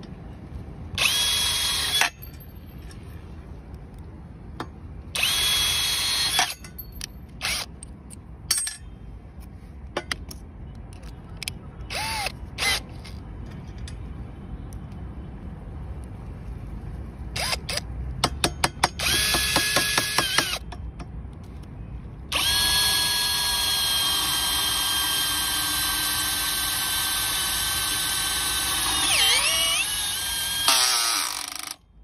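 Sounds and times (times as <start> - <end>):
cordless drill whining: 1.0 - 2.1, 5.2 - 6.6, 11.9 - 13.2, 19.0 - 20.6, 22.3 - 31.8.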